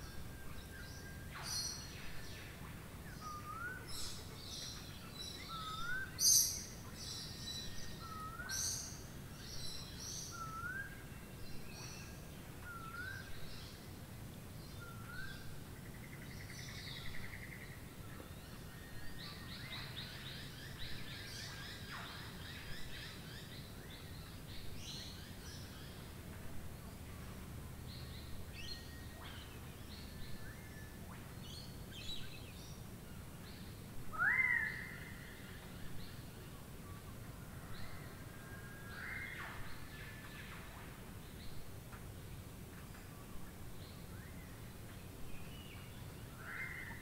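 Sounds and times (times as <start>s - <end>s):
steady rain hiss: 0.0s - 47.0s.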